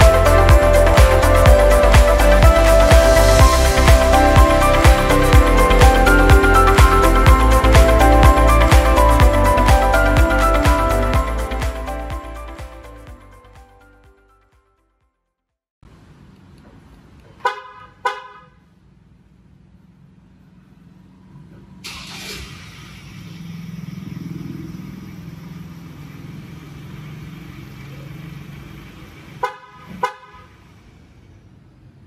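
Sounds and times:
car horn chirps: 17.4s - 18.6s, 29.4s - 30.6s
car engine cranking and running: 21.4s - 29.5s.

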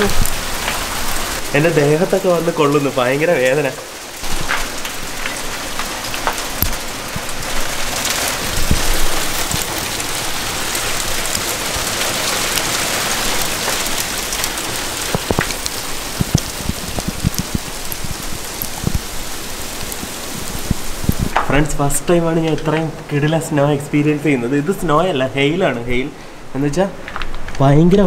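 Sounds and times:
sharp ticks of hail pellets: 0.0s - 21.5s
hail pelting the ground: 0.0s - 25.9s, 27.0s - 27.7s.

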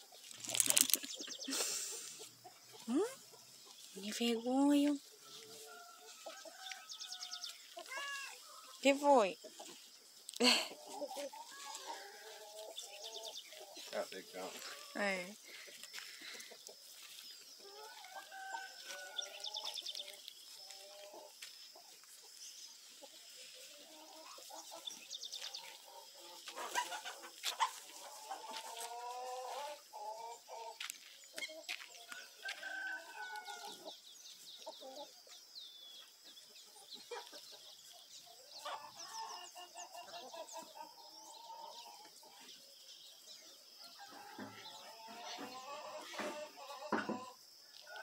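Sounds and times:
chickens clucking: 0.0s - 48.0s
rooster crowing: 17.8s - 19.8s, 32.1s - 33.8s.

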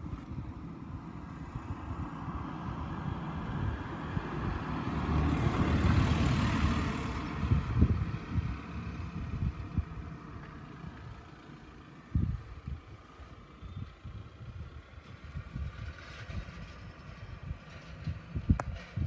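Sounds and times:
vehicle passing: 0.0s - 13.4s
wind buffeting microphone: 0.0s - 19.0s.

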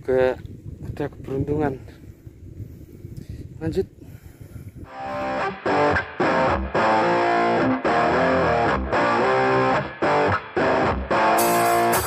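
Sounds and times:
distorted electric guitar chords: 4.9s - 12.0s.

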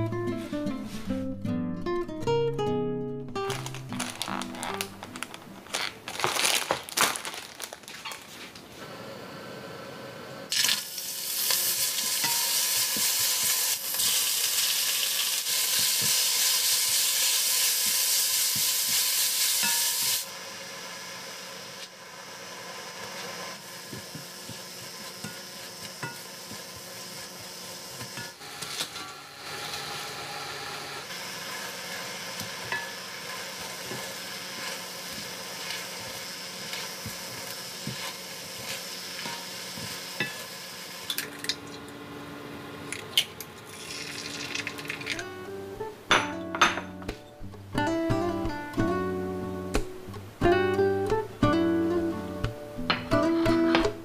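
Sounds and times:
food sizzling in frying pan: 10.5s - 28.7s, 31.1s - 41.3s, 43.7s - 45.3s.

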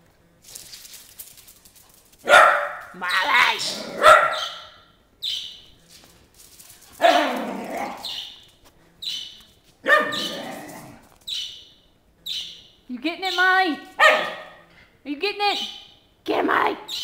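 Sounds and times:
dog barking: 2.2s - 3.0s, 3.8s - 4.8s, 7.0s - 8.2s, 9.8s - 10.4s, 14.0s - 14.6s
dog yipping: 4.0s - 5.4s, 9.8s - 10.5s, 14.0s - 14.6s.

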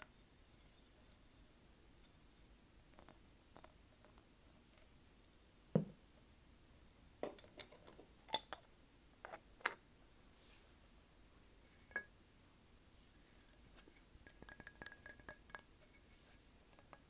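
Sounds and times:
dull knock: 5.8s - 6.0s.

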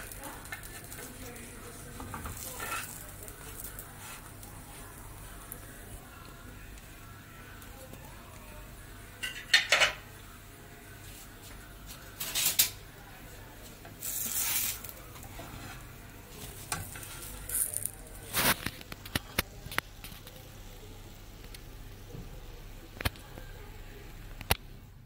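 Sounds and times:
spatula scraping griddle pan: 2.2s - 4.9s, 14.0s - 18.6s.

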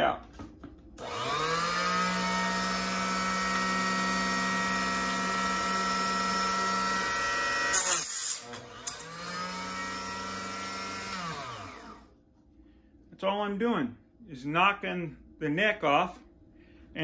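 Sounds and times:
chop saw motor whining: 1.0s - 12.1s
saw blade cutting brass: 7.7s - 9.4s.

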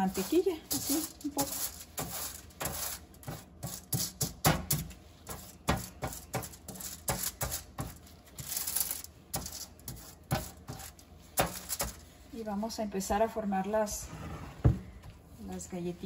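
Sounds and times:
aluminium foil crinkling and scraping: 0.0s - 12.7s.

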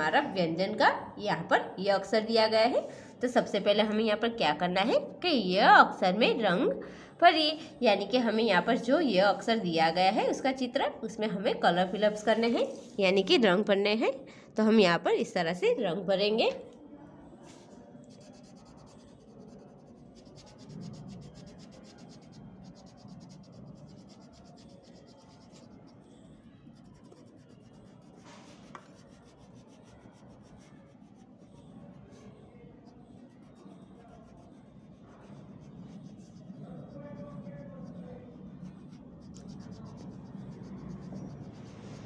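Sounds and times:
crayon rubbing on paper: 17.5s - 26.1s, 26.7s - 32.2s, 32.8s - 42.0s.

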